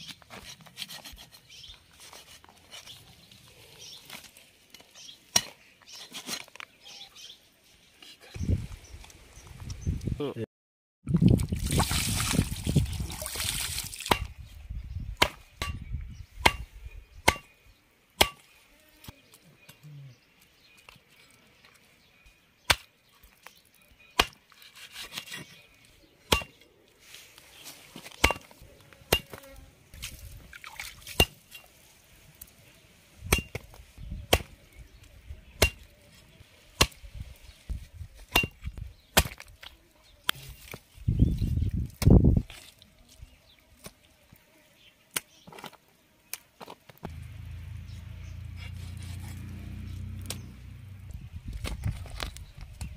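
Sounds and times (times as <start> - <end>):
cleaver chopping on wooden block: 16.4 - 16.7, 17.3 - 17.5, 18.2 - 18.4, 26.3 - 26.6, 28.2 - 28.5, 29.1 - 29.4, 33.3 - 33.6, 35.6 - 35.8, 38.3 - 39.4.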